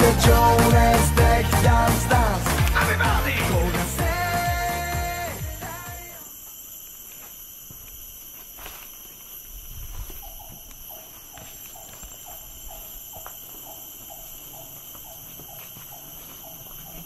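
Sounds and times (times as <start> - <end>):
high-pitched insect drone: 4.0 - 17.0
repeated animal call: 10.1 - 17.0.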